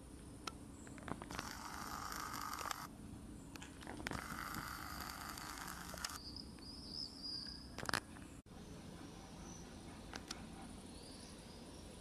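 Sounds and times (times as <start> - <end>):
small clicks: 0.4 - 2.9, 3.5 - 6.2.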